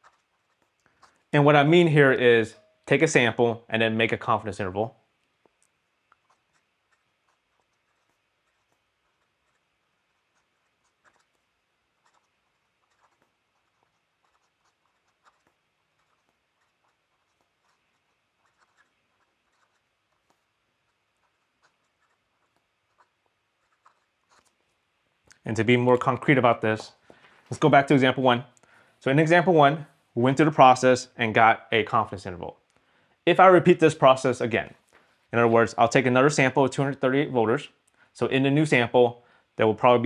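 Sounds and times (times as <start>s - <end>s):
pen nib scratching paper: 0.0s - 1.4s, 5.4s - 24.8s.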